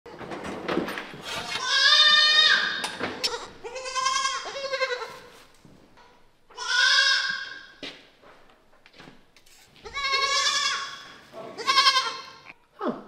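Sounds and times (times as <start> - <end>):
goat kids bleating: 1.3 - 5.4, 6.5 - 7.7, 9.8 - 12.6.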